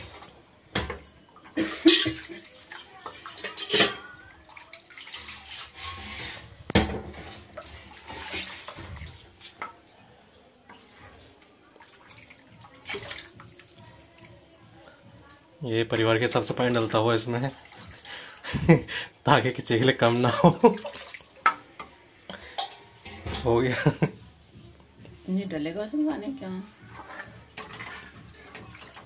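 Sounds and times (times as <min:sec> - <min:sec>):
liquid splashing and pouring: 0:04.4 - 0:09.6, 0:10.7 - 0:14.3, 0:20.2 - 0:21.6.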